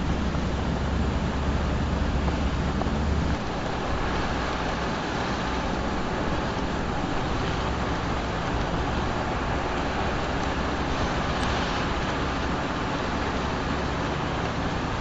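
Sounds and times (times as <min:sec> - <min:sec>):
vehicles driving on paved road: 0:00.0 - 0:15.0.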